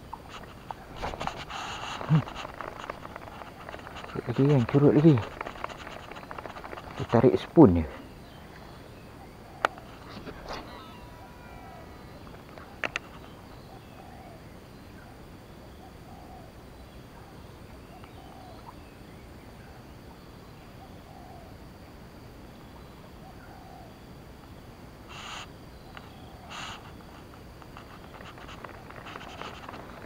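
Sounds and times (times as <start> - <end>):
outdoor background noise: 0.0 - 30.0
bird hooting: 9.2 - 15.2, 15.8 - 16.5, 23.2 - 24.0.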